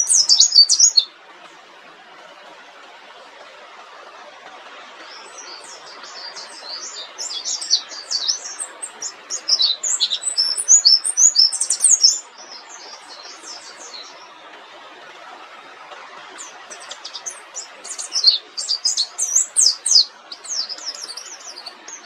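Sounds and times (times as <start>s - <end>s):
bird singing high chirps: 0.0s - 1.1s, 5.2s - 14.2s, 16.4s - 22.0s
steady background hiss: 0.0s - 22.0s.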